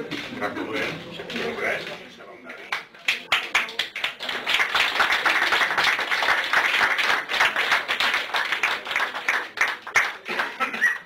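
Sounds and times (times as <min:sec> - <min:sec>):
crowd applauding: 0:03.1 - 0:11.0.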